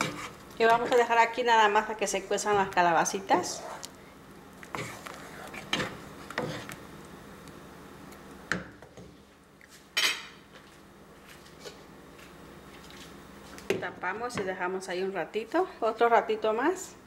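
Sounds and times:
wooden spoon stirring soup: 0.0s - 9.7s.

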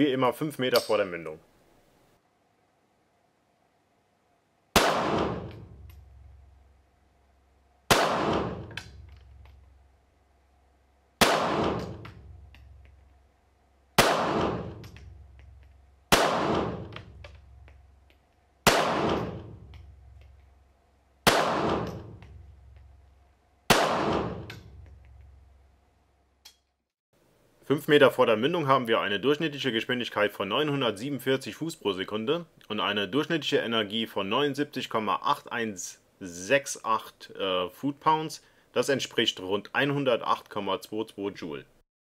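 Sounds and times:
pistol shots: 4.7s - 5.9s, 7.9s - 9.1s, 11.2s - 12.4s, 14.0s - 15.2s, 16.1s - 17.2s, 18.6s - 19.7s, 21.2s - 22.4s, 23.7s - 24.8s
gunshot reverberation indoors: 4.7s - 6.5s, 7.9s - 9.6s, 11.2s - 12.8s, 14.0s - 17.6s, 18.6s - 20.1s, 21.2s - 22.8s, 23.7s - 25.4s.

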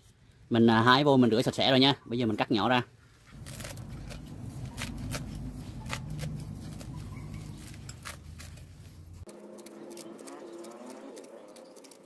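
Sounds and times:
knife slicing leaves: 3.3s - 12.0s.

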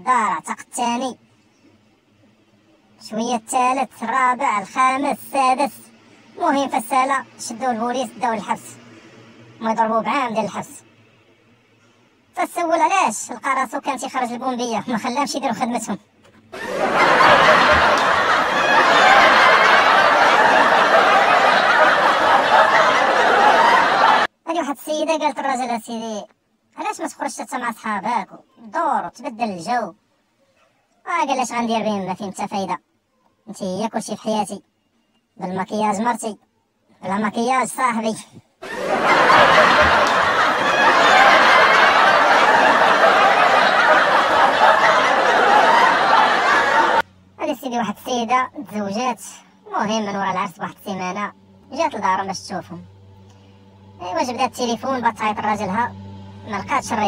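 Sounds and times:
crowd laughing: 16.6s - 24.3s, 38.6s - 47.1s, 52.9s - 57.0s.

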